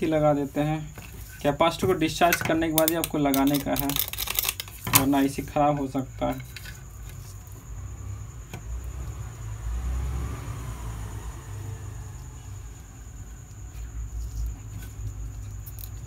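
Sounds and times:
circuit board handling: 1.8s - 5.5s.

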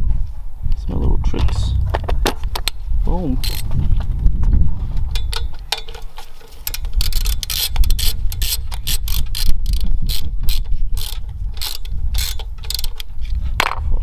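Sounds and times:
socket ratchet clicking: 3.4s - 3.7s, 5.2s - 13.1s.

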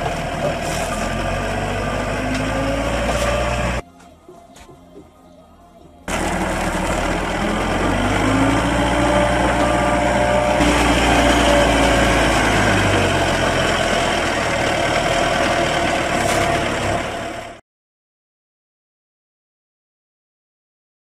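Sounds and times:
diesel engine running: 0.0s - 3.8s, 6.0s - 17.6s.

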